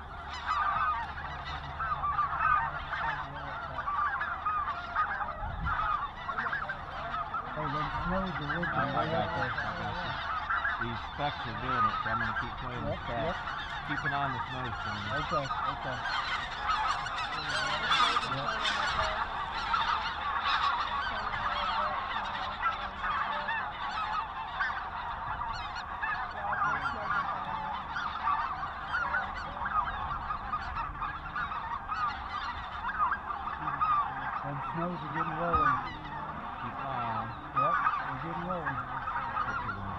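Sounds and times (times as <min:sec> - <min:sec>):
geese honking: 0:00.0 - 0:39.9.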